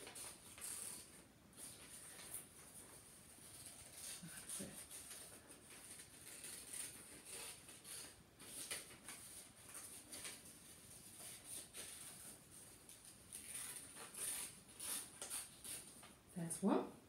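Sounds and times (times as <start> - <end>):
scissors snipping paper: 3.4 - 10.5.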